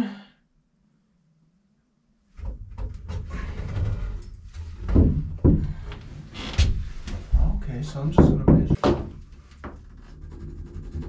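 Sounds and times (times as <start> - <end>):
wooden knocks and thumps: 2.4 - 4.0, 4.6 - 9.8.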